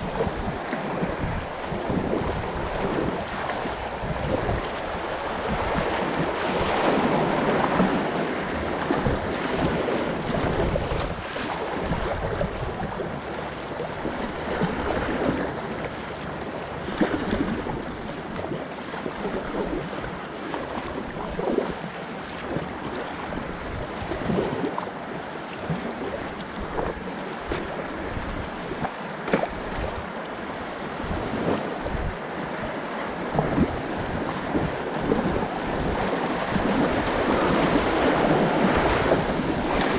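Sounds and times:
wind buffeting microphone: 0:00.0 - 0:15.8, 0:16.6 - 0:24.8, 0:25.6 - 0:39.9
paddle splashes: 0:00.0 - 0:39.9
whitewater rushing: 0:30.3 - 0:39.9.

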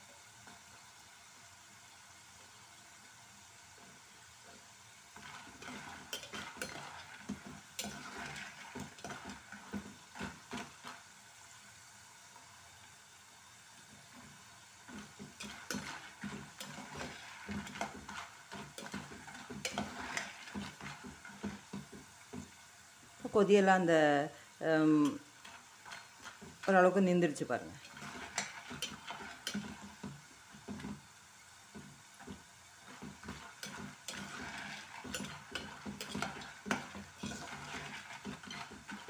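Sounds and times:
oil sizzling and bubbling: 0:00.0 - 0:39.0
spoon scraping metal pot: 0:05.2 - 0:11.0, 0:14.9 - 0:22.0, 0:25.0 - 0:26.7, 0:27.7 - 0:30.9, 0:32.2 - 0:39.0.

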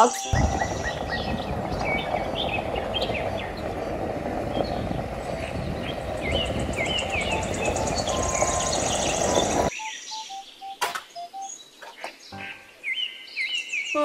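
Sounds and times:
high rapid bird trill: 0:00.0 - 0:11.6
birds chirping: 0:00.0 - 0:14.0
diesel truck engine rumble: 0:00.3 - 0:09.7.

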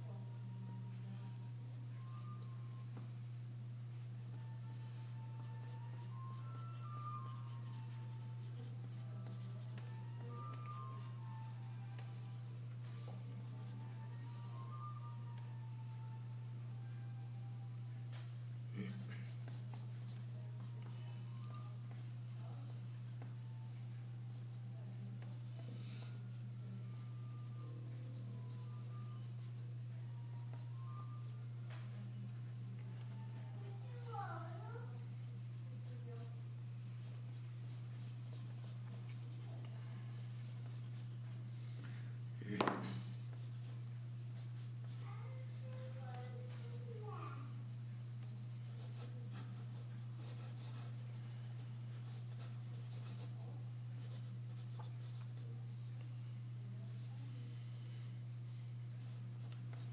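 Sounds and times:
steady low hum: 0:00.0 - 0:59.9
pencil scratching on paper: 0:48.2 - 0:56.2, 0:59.0 - 0:59.9.

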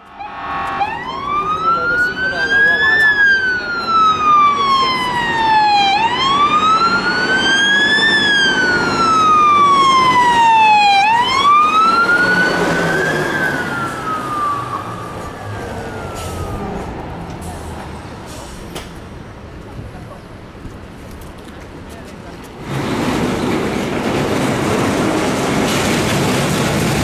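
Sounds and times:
emergency siren wailing: 0:00.0 - 0:17.6.

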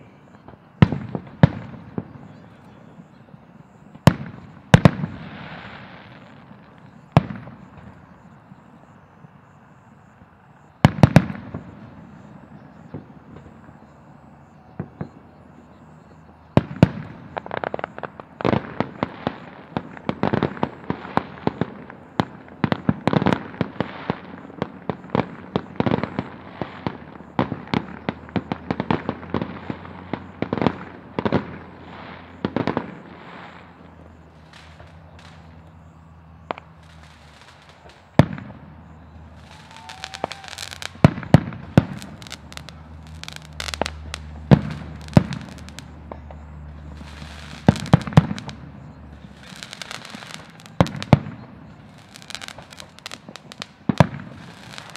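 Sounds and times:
fireworks bangs and crackles: 0:00.0 - 0:54.9.

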